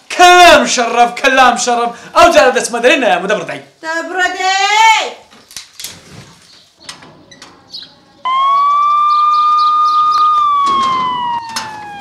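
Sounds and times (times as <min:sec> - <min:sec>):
siren wail: 0:08.3 - 0:12.0.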